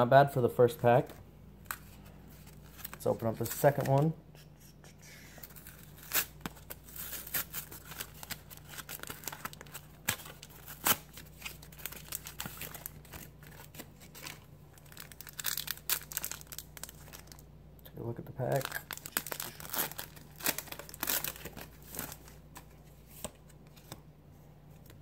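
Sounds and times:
blister pack crinkling and tearing: 0:05.4 - 0:17.4, 0:18.4 - 0:22.7.

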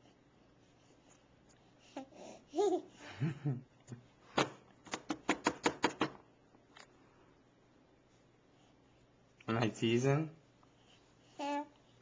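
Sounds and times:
person laughing: 0:03.0 - 0:03.7.

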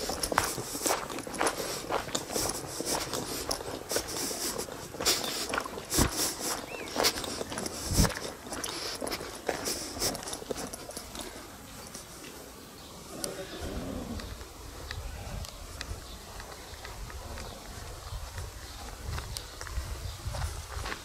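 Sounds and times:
footsteps on gravel: 0:00.0 - 0:12.4, 0:15.8 - 0:21.0.

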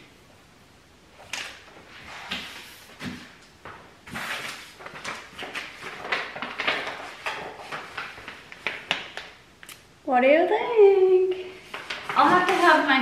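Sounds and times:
rustling: 0:11.2 - 0:13.0.

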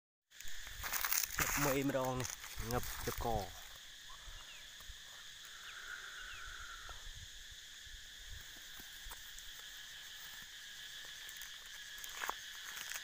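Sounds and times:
rustling over dry leaves: 0:00.3 - 0:06.1, 0:08.4 - 0:13.0
insects buzzing: 0:00.3 - 0:13.0.

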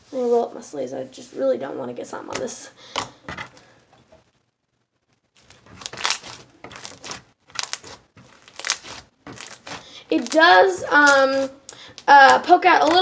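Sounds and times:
crunchy slime squishing: 0:05.3 - 0:13.0.

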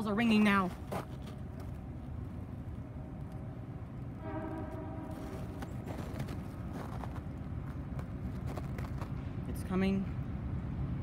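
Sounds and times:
steady low rumble: 0:00.0 - 0:11.0
train horn blast: 0:04.2 - 0:05.8.

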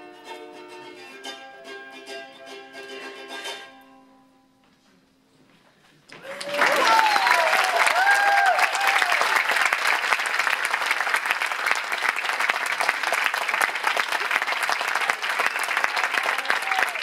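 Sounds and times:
audience clapping: 0:06.1 - 0:17.0
voices cheering: 0:06.2 - 0:09.9, 0:12.9 - 0:17.0.

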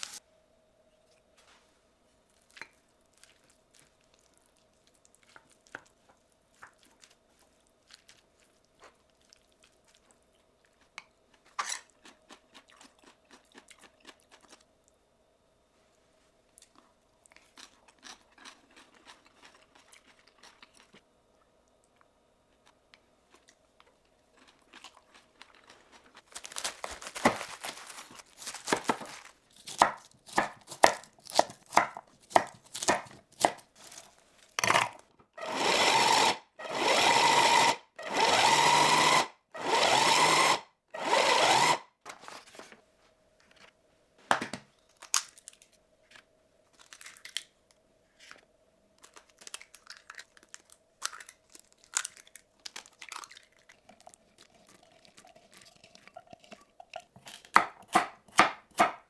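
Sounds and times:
crisp crackling clicks and taps: 0:49.0 - 0:57.6.

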